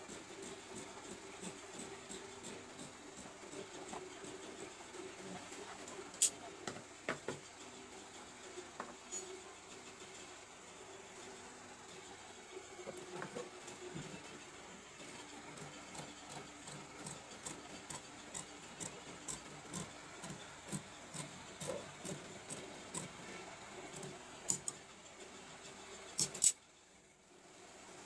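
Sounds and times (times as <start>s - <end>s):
shears snipping fabric: 17.0s - 23.2s.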